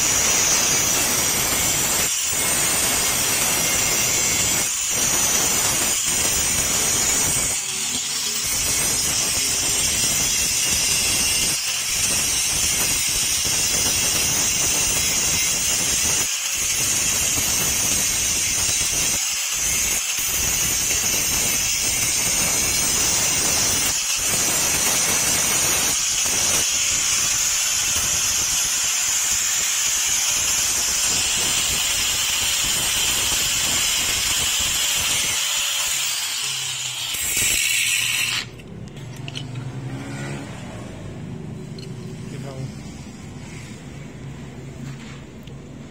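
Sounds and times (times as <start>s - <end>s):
angle grinder grinding metal: 0.0s - 40.6s.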